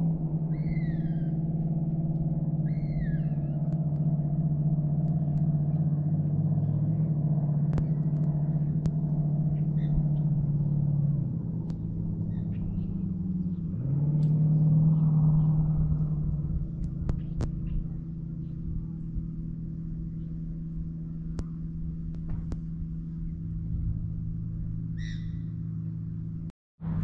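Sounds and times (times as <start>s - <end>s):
motor engine humming: 0.0s - 27.0s
faint bird chirps: 0.3s - 4.2s, 9.4s - 11.2s, 11.8s - 15.6s, 24.9s - 26.0s.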